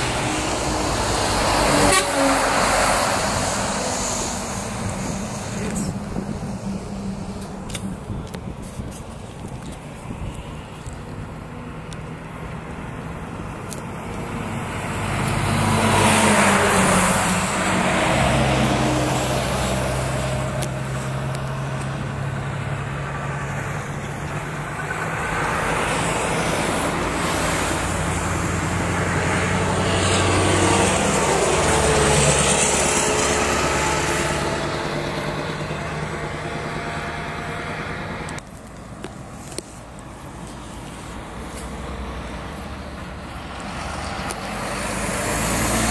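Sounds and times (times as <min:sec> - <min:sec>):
heavy trucks driving past: 0:00.0 - 0:45.9.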